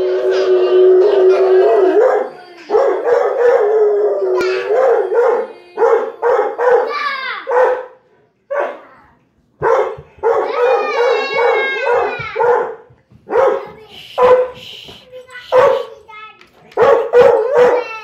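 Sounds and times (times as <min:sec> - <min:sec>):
dog howling: 0:00.0 - 0:07.5, 0:10.4 - 0:12.2
dog barking: 0:00.3 - 0:08.8, 0:09.6 - 0:14.6, 0:15.5 - 0:15.9, 0:16.8 - 0:18.0.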